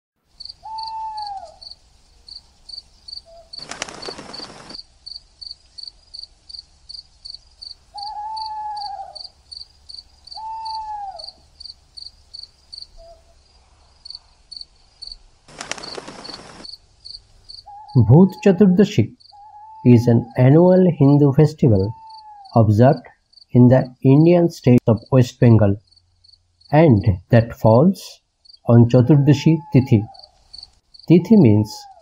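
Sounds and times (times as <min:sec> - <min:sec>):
crickets chirping: 0:00.3 - 0:24.4, 0:25.0 - 0:32.0
drawn-out pitched calls: 0:00.4 - 0:01.8, 0:03.2 - 0:04.8, 0:07.9 - 0:11.4, 0:15.5 - 0:16.7, 0:17.6 - 0:23.1, 0:28.7 - 0:32.0.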